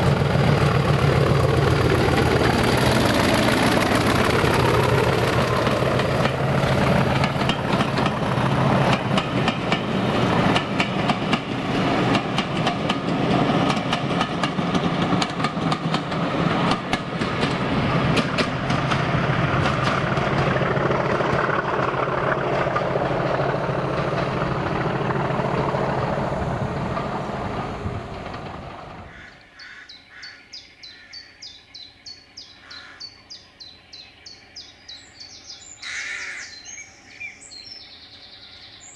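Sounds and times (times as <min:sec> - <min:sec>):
diesel locomotive engine: 0:00.0 - 0:29.6
wheels clattering over rail joints: 0:00.2 - 0:29.2
bird chirping: 0:29.1 - 0:38.9.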